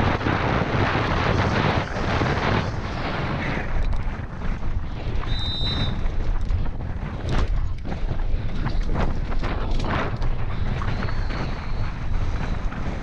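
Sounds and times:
mountain bike rattling on trail: 0:00.0 - 0:13.0
wind buffeting microphone: 0:00.0 - 0:13.0
bike clicks and knocks: 0:03.6 - 0:13.0.

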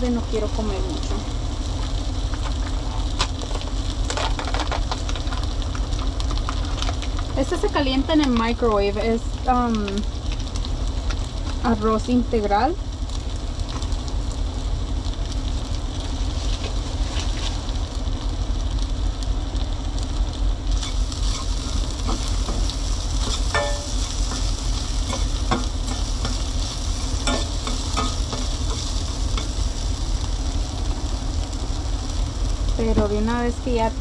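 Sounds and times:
food sizzling in a pot: 0:00.0 - 0:34.0
steady low hum: 0:00.0 - 0:34.0
utensil stirring in a pot: 0:20.8 - 0:30.6.

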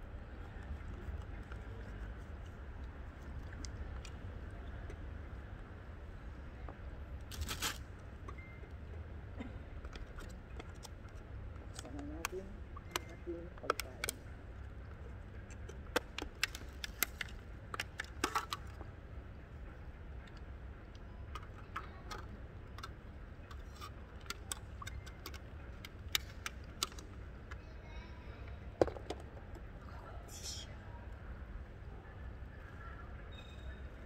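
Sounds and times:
plastic container clicks and crackles: 0:15.6 - 0:18.9, 0:21.3 - 0:27.6.

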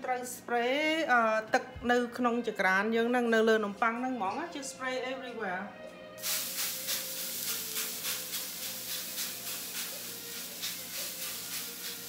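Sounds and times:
spray bottle squirting water: 0:06.2 - 0:12.0.

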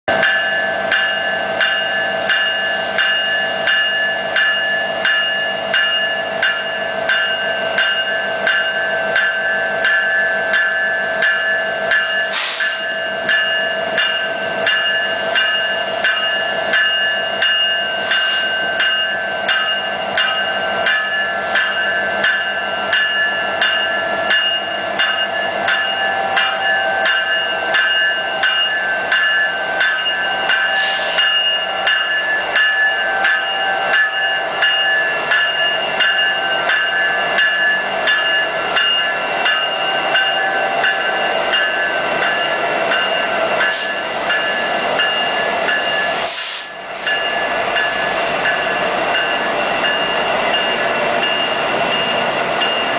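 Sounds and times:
locomotive bell ringing: 0:00.1 - 0:52.9
short air hisses: 0:12.3 - 0:12.7, 0:46.2 - 0:46.8.

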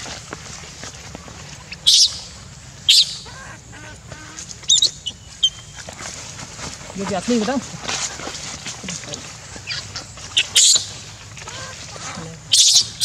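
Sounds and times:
baby monkey screaming: 0:09.7 - 0:13.0.

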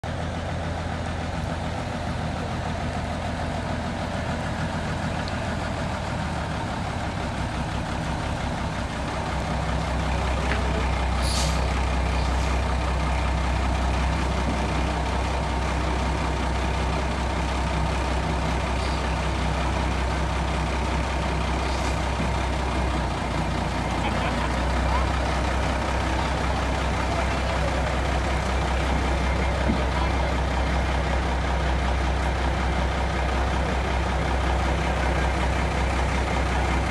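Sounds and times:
diesel truck engine idling: 0:00.0 - 0:36.9
air brakes hissing: 0:11.2 - 0:12.6, 0:18.8 - 0:19.2, 0:21.6 - 0:22.1.

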